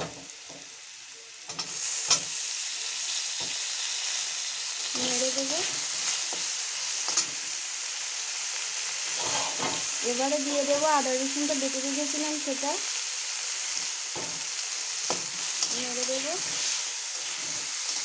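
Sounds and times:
food sizzling in hot oil: 0.0s - 18.0s
metal spatula scraping pan: 9.1s - 10.0s, 15.4s - 18.0s.

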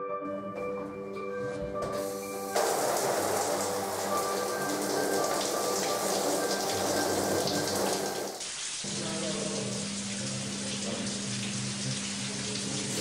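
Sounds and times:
music tones: 0.0s - 8.3s
shower water spraying: 1.9s - 13.0s.

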